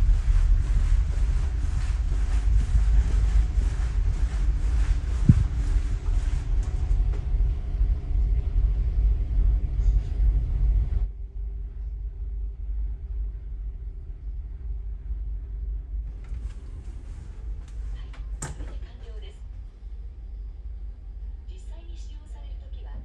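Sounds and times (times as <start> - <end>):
ship engines rumbling: 0.0 - 11.8, 12.7 - 23.0
faint hum tones: 0.0 - 23.0.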